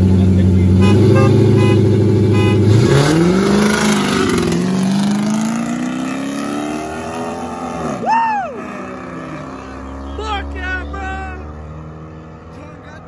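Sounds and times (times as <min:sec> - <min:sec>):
car engines revving: 0:00.0 - 0:13.0.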